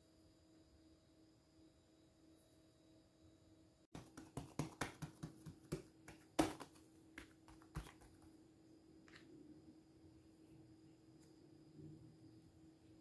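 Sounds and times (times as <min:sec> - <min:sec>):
palm patting dough: 0:03.9 - 0:08.4.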